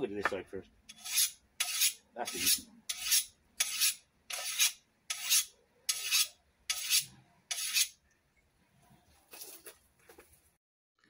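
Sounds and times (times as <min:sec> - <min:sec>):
file rasping on steel blade: 0:00.9 - 0:08.0.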